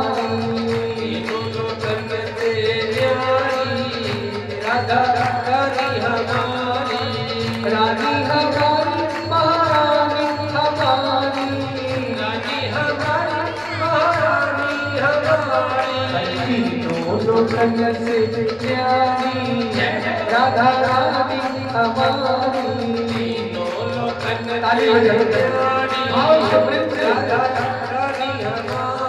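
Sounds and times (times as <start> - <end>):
drum beat: 0.0 - 29.0
man singing: 0.0 - 29.0
held drone: 16.3 - 18.6.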